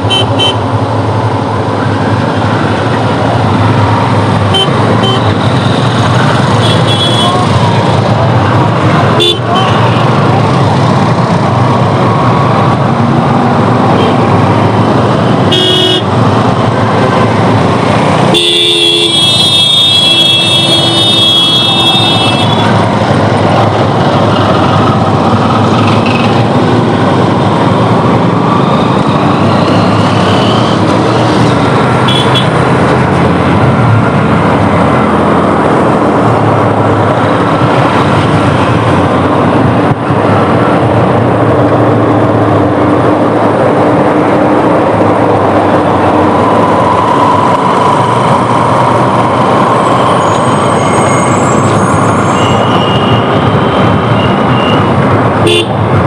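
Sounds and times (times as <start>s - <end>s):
wind and motorcycle engine: 0.0s - 56.0s
vehicle horn: 4.5s - 5.3s, 6.6s - 7.4s, 9.2s - 9.9s, 15.5s - 16.1s, 18.3s - 22.7s, 32.1s - 32.5s, 55.4s - 55.8s.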